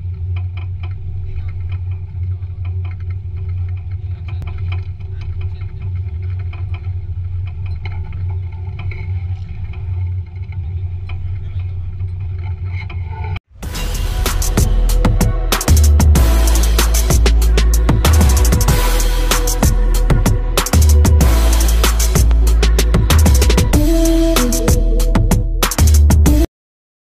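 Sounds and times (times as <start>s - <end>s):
boat engine droning: 13.6s - 25.6s.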